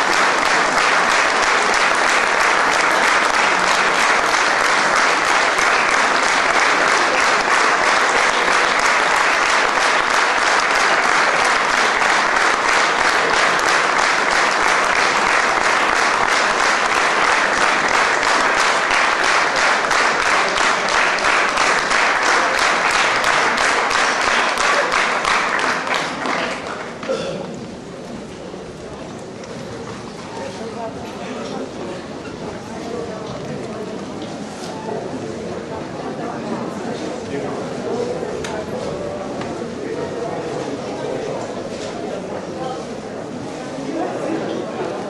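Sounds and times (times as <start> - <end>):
audience applauding: 0.0 - 27.1.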